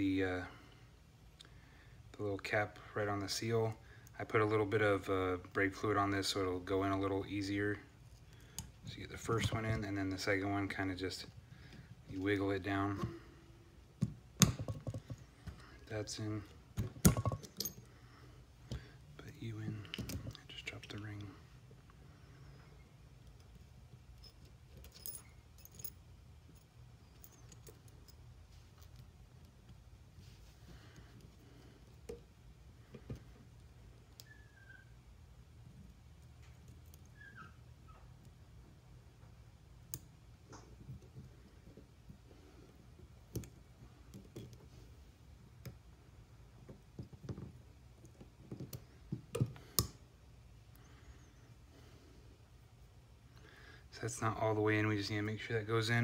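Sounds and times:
low steady hum: 0.0s - 56.0s
small metallic clicks and clinks: 24.2s - 28.2s.

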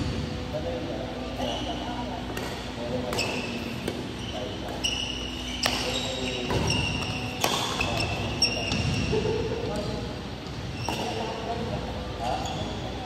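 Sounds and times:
sneakers squeaking on court floor: 1.4s - 13.0s
rackets striking shuttlecock: 2.3s - 4.8s, 5.4s - 9.1s.

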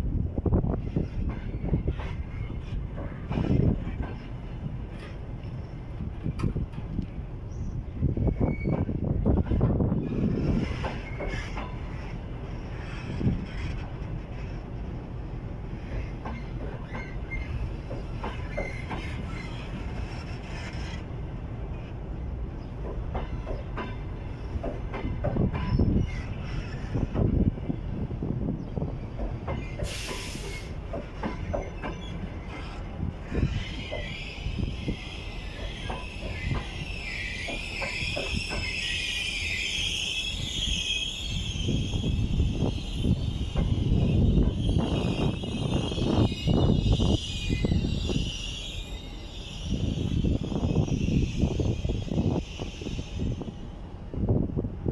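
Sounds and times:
train wheels rumbling on rails: 0.0s - 54.9s
high wheel squeals: 8.1s - 9.0s, 31.6s - 53.7s.

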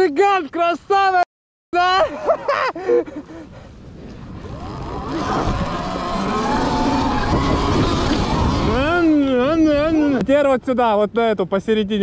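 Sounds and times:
rushing noise: 4.4s - 9.2s.

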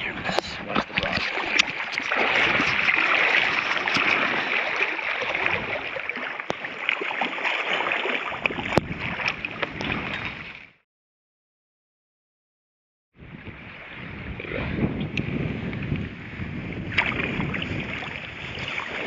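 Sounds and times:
river current rushing and lapping: 0.0s - 10.8s, 13.2s - 19.0s
fish splashing in a net: 1.2s - 9.3s.

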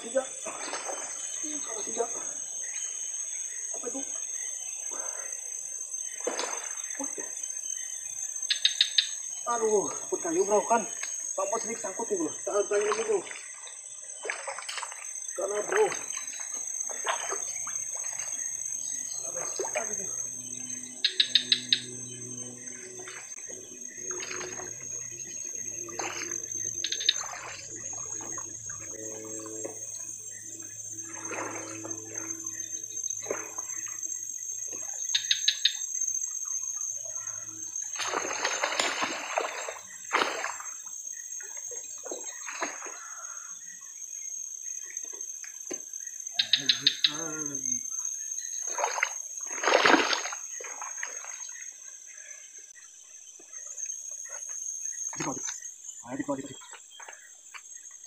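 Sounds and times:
wading splashes in shallow water: 0.0s - 2.3s, 6.1s - 7.4s, 9.8s - 20.2s, 23.0s - 29.2s, 30.9s - 32.4s, 33.2s - 34.0s, 37.8s - 43.3s, 48.6s - 51.9s
high-pitched insect drone: 0.0s - 58.0s.

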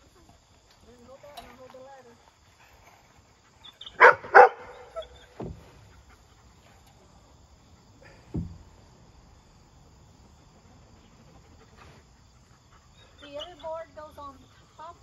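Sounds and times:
dog barking: 3.9s - 5.2s
dull knocks: 5.3s - 5.8s, 8.1s - 8.8s.

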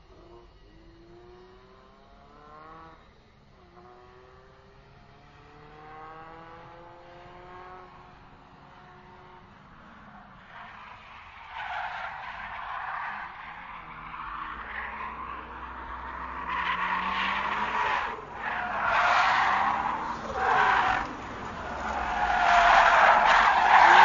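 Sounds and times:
racing car engine accelerating: 0.1s - 10.4s, 11.6s - 24.0s
tyre skid squeal: 10.1s - 24.0s.

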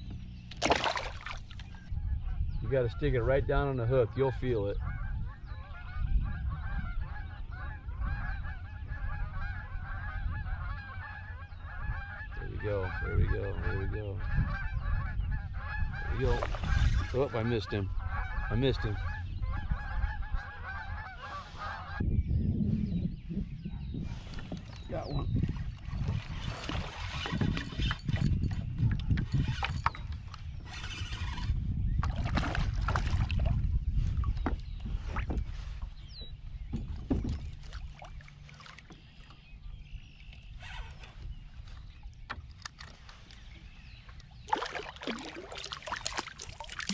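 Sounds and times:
wind rumble on microphone: 0.0s - 0.6s, 1.3s - 46.9s
geese honking: 4.8s - 22.1s.

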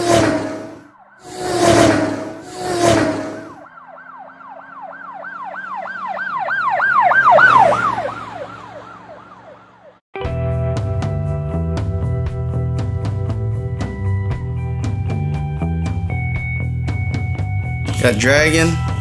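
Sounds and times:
emergency siren yelping: 0.0s - 10.0s
music: 10.2s - 19.0s.

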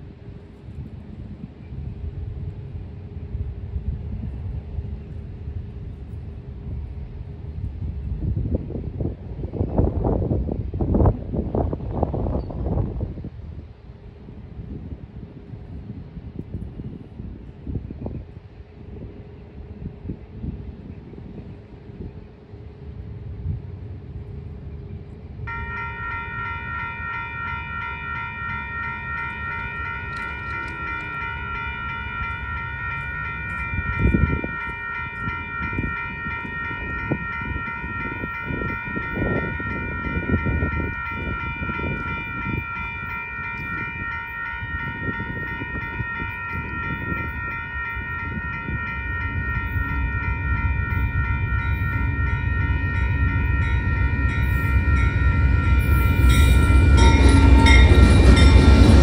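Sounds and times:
train rumble: 0.0s - 59.0s
railroad crossing bell ringing: 25.4s - 59.0s.

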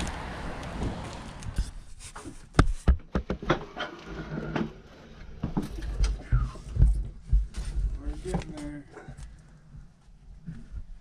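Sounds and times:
rubbing and scraping: 0.9s - 8.8s
knocks and thumps: 2.2s - 3.8s, 5.4s - 8.6s.

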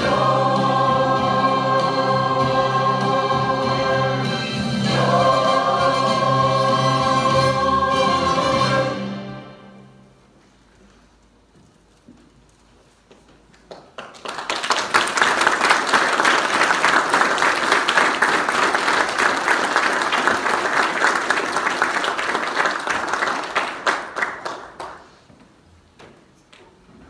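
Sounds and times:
audience applauding: 13.7s - 25.2s.

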